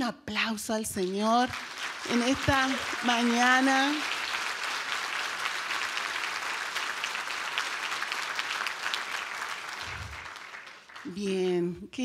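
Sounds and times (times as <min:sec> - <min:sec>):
congregation applauding: 0:01.5 - 0:11.5.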